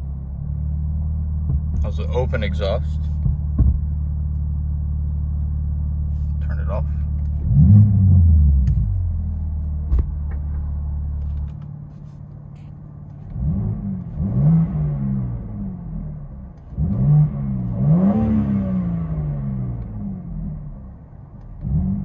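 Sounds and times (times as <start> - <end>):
car engine idling: 0.0 - 17.9
engine revving in short blips: 7.2 - 9.2.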